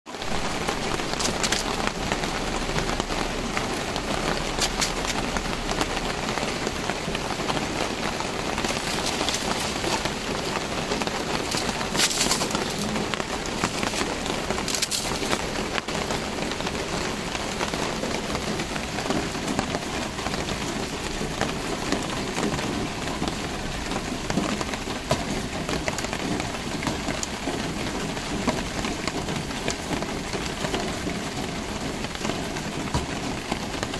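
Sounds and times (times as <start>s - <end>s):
sharp clicks and crackles: 0.2s - 18.5s.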